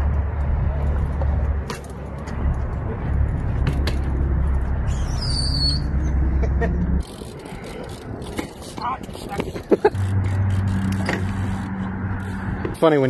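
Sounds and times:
wind rumbling on microphone: 0.0s - 12.8s
bike tyres rolling on concrete: 0.0s - 13.0s
short high squeak: 4.9s - 6.1s.

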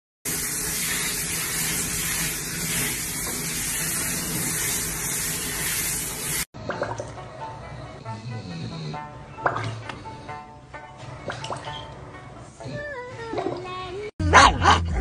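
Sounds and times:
shower sprayer hissing: 0.3s - 6.5s.

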